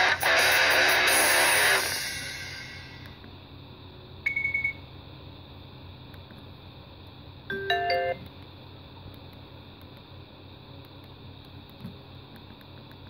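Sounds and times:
electronic alert chime: 7.5 - 8.2.

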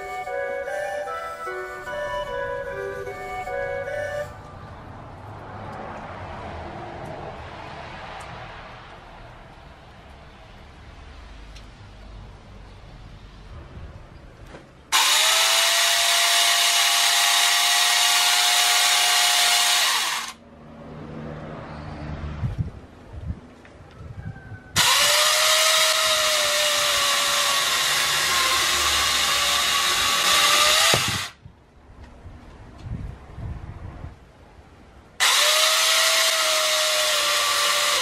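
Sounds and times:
chain cutting into log: 14.9 - 20.4, 24.8 - 31.4, 35.2 - 38.0
chainsaw grinder whining: 14.9 - 20.4, 24.8 - 31.4, 35.2 - 38.0.

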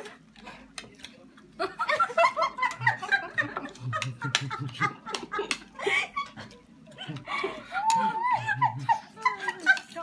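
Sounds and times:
deep chuckle: 1.6 - 9.8.

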